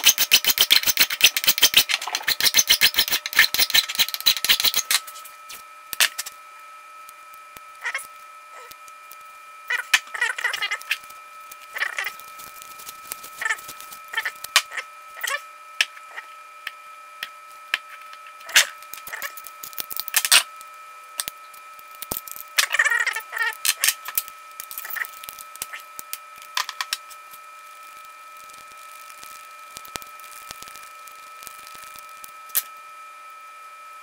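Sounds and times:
masking tape rustling: 0:09.7 - 0:15.4.

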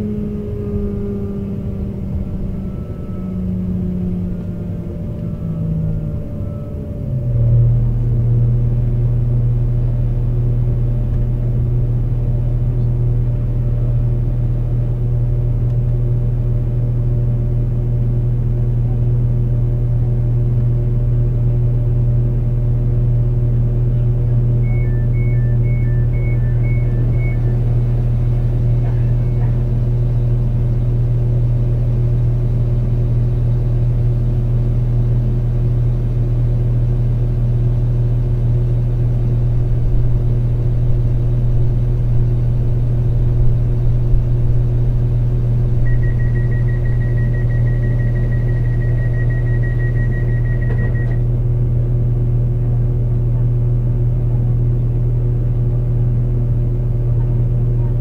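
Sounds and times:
diesel engine low drone: 0:00.0 - 0:58.0
two-tone electronic beeps: 0:24.6 - 0:27.8, 0:45.8 - 0:51.2
steady high electronic tone: 0:45.8 - 0:51.2.

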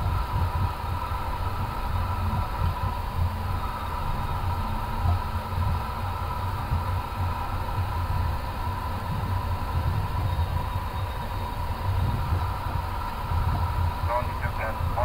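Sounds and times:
aircraft engines idling rumble: 0:00.0 - 0:15.0
faint whine and hiss: 0:00.0 - 0:15.0.

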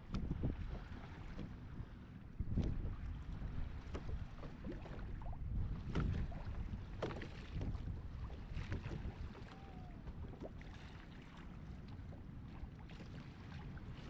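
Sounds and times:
light knocks and gurgles: 0:00.0 - 0:14.0
water lapping against boat hull: 0:00.0 - 0:14.0
wind rumble on microphone: 0:00.0 - 0:14.0.

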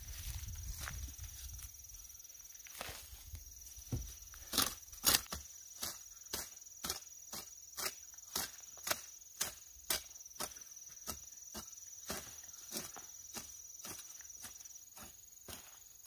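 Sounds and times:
high insect call: 0:00.0 - 0:16.0
hand hoe chopping into soil: 0:03.9 - 0:14.0.

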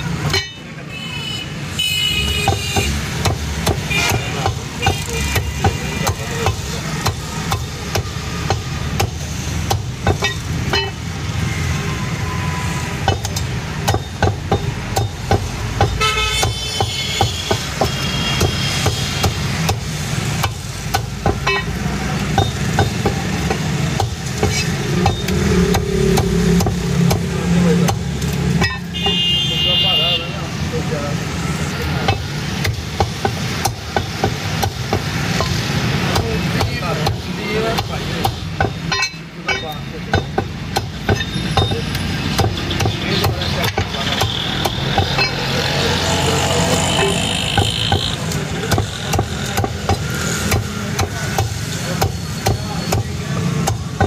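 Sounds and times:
traffic rumble: 0:00.0 - 0:54.0
car horns tooting: 0:00.2 - 0:08.8, 0:15.9 - 0:19.6, 0:21.4 - 0:21.8, 0:28.6 - 0:30.6, 0:41.0 - 0:49.3
cleaver chopping on wooden block: 0:32.1 - 0:45.3, 0:48.0 - 0:54.0.

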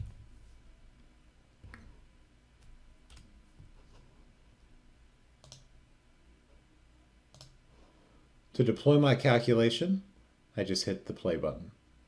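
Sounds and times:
faint mouse clicks: 0:05.4 - 0:05.7, 0:07.3 - 0:07.6.

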